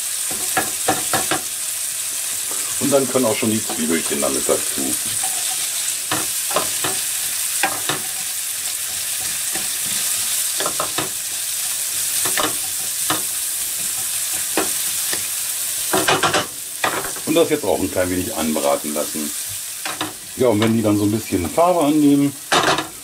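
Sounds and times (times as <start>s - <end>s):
onions and bacon sizzling: 0.0s - 23.0s
wooden spatula scraping a pan: 2.2s - 11.1s.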